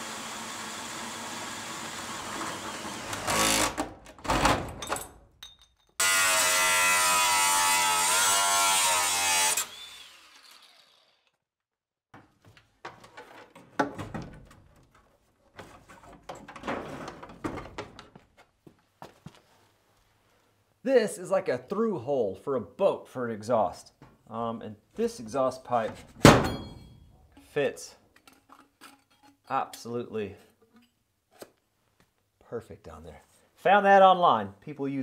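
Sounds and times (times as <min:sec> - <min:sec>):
drill cutting sheet metal: 0:00.0 - 0:03.9, 0:06.0 - 0:11.4
angle grinder grinding: 0:06.0 - 0:11.4
clicks and knocks of parts handled: 0:28.1 - 0:29.9.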